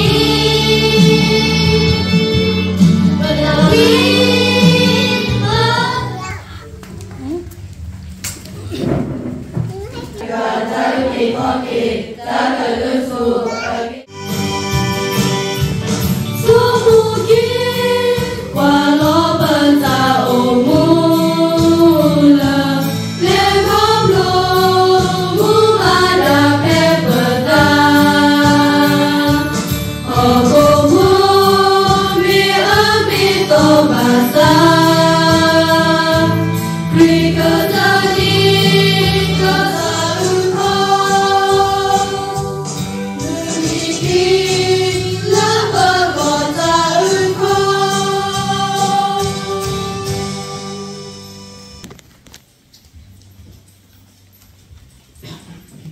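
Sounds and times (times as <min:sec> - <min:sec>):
girls singing a hymn: 0:00.0 - 0:06.2, 0:10.2 - 0:14.1, 0:16.4 - 0:51.1.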